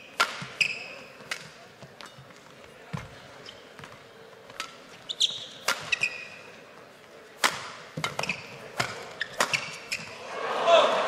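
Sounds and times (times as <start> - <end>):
racket hitting shuttlecock: 0.0 - 3.2, 3.8 - 6.5, 7.3 - 10.2
shoes squeaking on court: 0.0 - 10.2.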